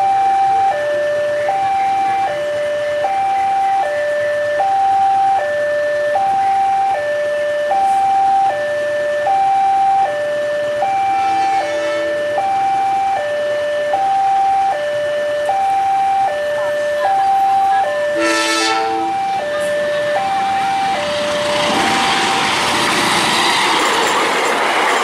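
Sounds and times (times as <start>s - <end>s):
two-tone crossing alarm: 0.0s - 25.0s
short horn: 11.2s - 12.2s, 18.2s - 19.2s.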